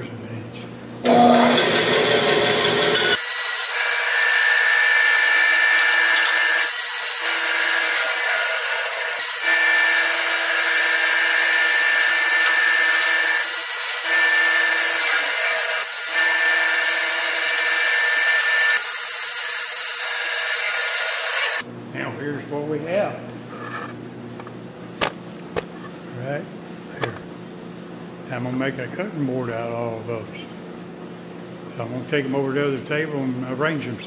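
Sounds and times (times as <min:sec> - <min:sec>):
bandsaw cutting wood whine: 0:01.0 - 0:21.6.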